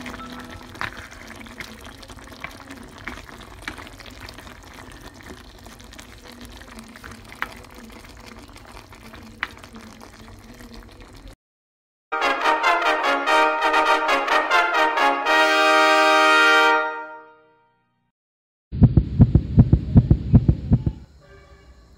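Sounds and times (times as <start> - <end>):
bubbles popping: 0.0 - 11.4
stew bubbling at a boil: 0.0 - 11.4.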